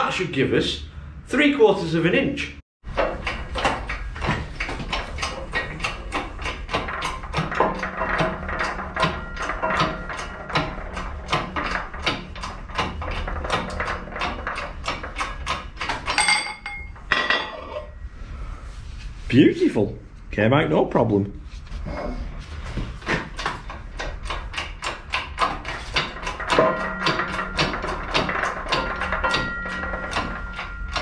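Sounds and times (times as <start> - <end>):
press pump clattering: 2.9 - 17.0, 22.6 - 31.0
metallic ring: 7.8 - 12.0, 16.1 - 18.2, 26.4 - 31.0.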